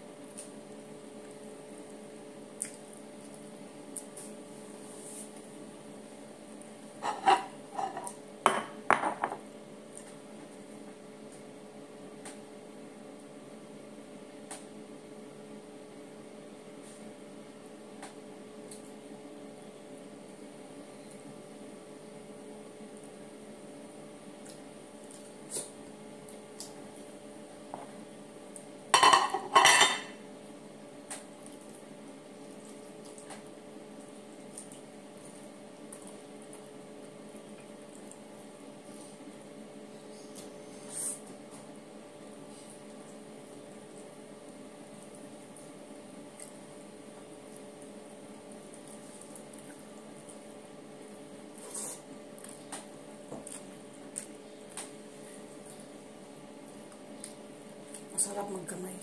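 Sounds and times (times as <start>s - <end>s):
ceramic dishes clinking: 7.0s - 9.4s, 29.0s - 30.2s.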